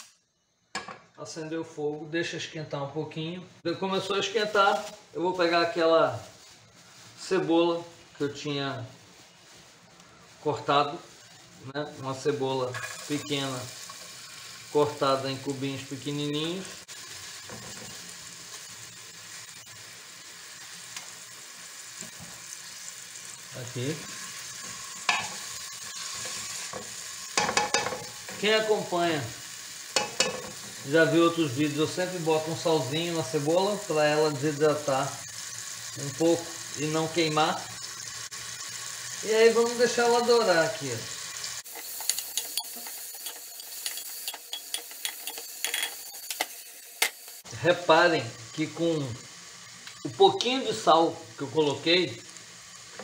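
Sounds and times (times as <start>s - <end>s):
onion sizzling in hot oil: 3.6s - 53.0s
utensil scraping against pot: 24.1s - 28.5s, 41.6s - 47.4s.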